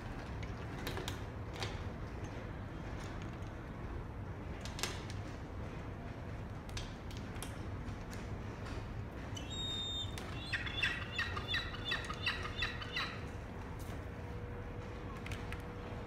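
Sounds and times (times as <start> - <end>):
gull calling: 9.4 - 13.3.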